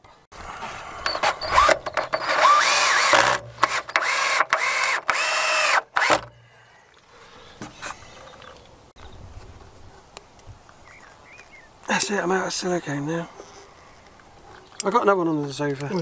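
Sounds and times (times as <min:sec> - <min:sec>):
power drill whining: 0:00.5 - 0:06.4.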